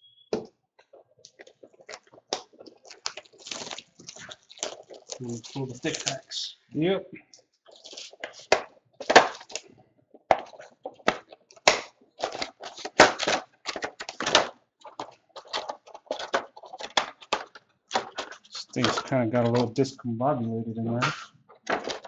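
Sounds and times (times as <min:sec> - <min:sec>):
plastic wrapping crinkling: 0:00.8 - 0:06.4, 0:07.6 - 0:19.6.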